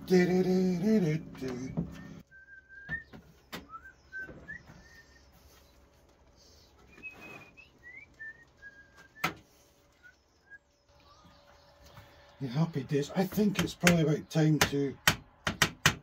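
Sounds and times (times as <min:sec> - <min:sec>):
person whistling: 0:02.0 - 0:05.3, 0:06.9 - 0:09.4.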